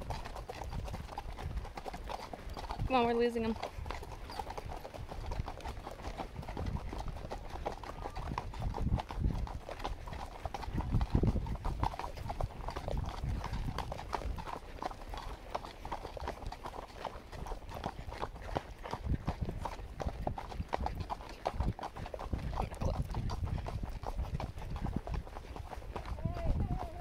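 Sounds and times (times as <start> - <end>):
horse hooves on dirt: 0.0 - 27.0.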